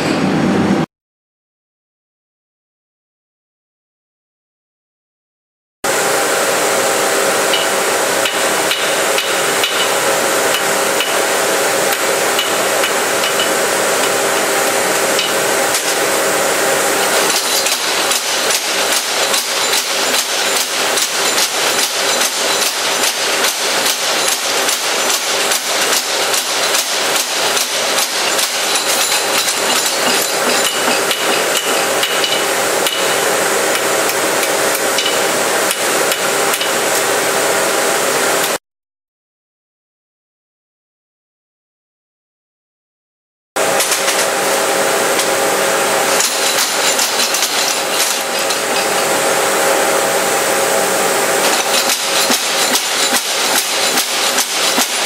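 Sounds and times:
machine hum: 5.9s - 38.6s, 43.6s - 55.0s
spring hammer pounding hot steel: 7.0s - 37.0s, 43.6s - 55.0s.

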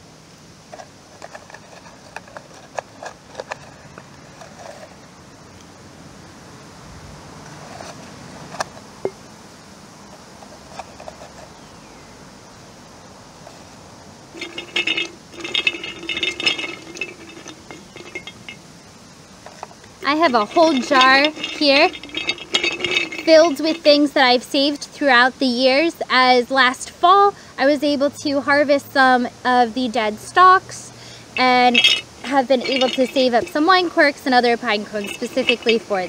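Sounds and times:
clinks and rattles in glass jar: 14.4s - 18.6s, 19.4s - 24.8s, 31.4s - 36.0s.

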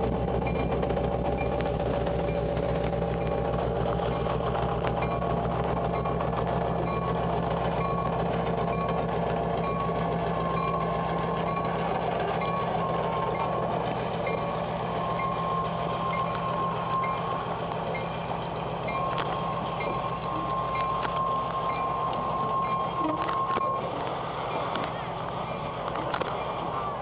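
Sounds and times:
diesel locomotive engine drone: 0.0s - 27.0s
short high-pitched tones: 9.6s - 18.2s, 18.8s - 27.0s.

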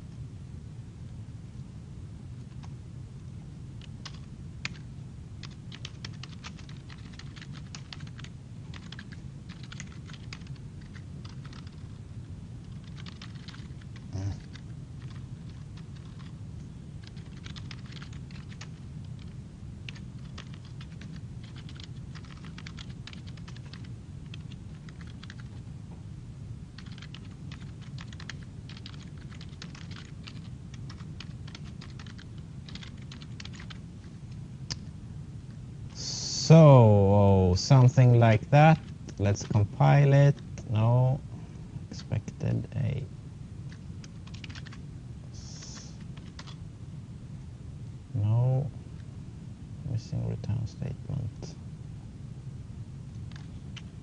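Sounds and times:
steady low hum: 0.0s - 54.0s
keyboard typing: 3.8s - 4.8s, 5.4s - 12.0s, 12.6s - 16.4s, 17.0s - 25.6s, 26.8s - 33.8s, 44.0s - 44.8s, 45.8s - 46.6s, 53.3s - 53.9s.

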